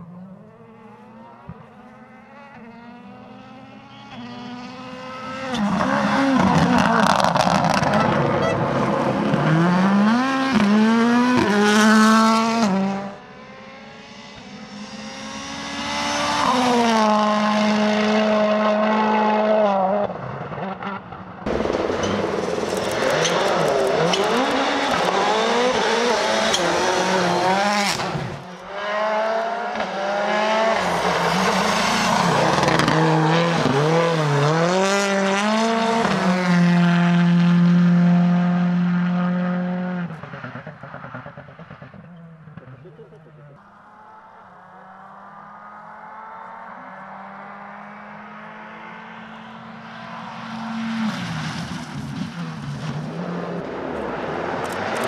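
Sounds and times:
car engines revving hard: 0.0s - 55.0s
rally cars passing at speed: 0.0s - 55.0s.

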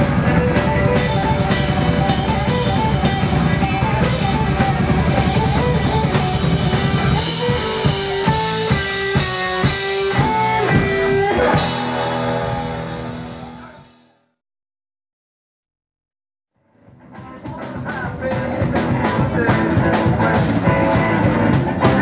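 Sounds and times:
band accented hits: 0.0s - 14.0s
live rock band playing: 0.0s - 14.0s, 16.8s - 22.0s.

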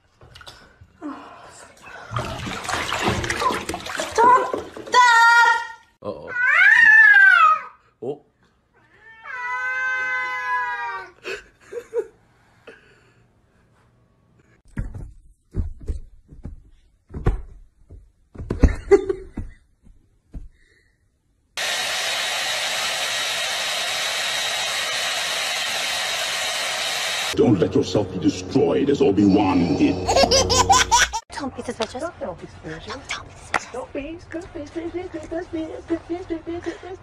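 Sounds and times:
cat yowling: 6.3s - 7.8s, 8.8s - 11.1s
thumps and knocks: 14.7s - 20.5s.

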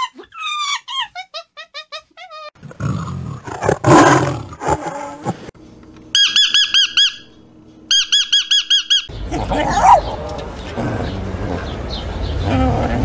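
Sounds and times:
tiger roaring: 2.6s - 5.5s
bird chirps: 6.2s - 9.3s.

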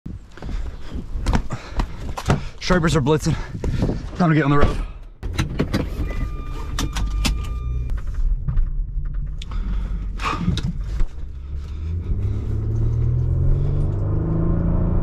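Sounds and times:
clicks and knocks from controls: 5.2s - 9.6s
electronic warning tone: 6.0s - 7.9s
car engine running: 7.5s - 15.0s.

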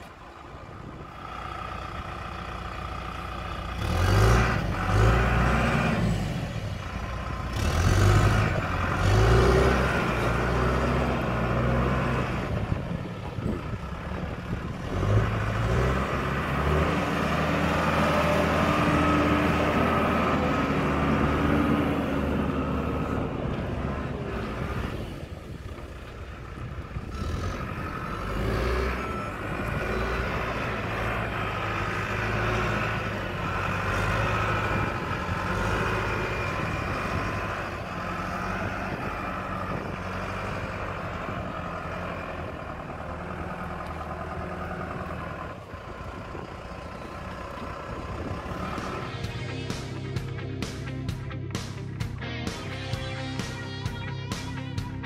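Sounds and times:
diesel engine revving: 0.0s - 55.0s.

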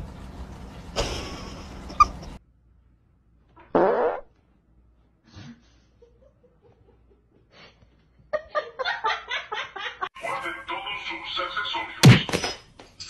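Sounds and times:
person farting: 3.6s - 4.3s.

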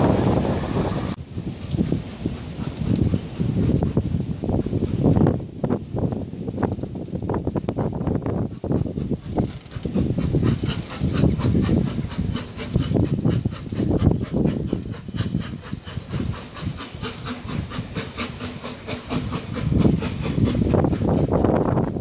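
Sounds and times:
steam locomotive exhaust beat: 0.0s - 22.0s
wind buffeting microphone: 0.0s - 22.0s.

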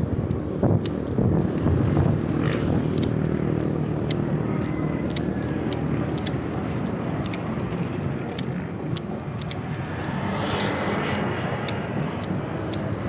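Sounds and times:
footsteps on asphalt: 0.0s - 13.0s.

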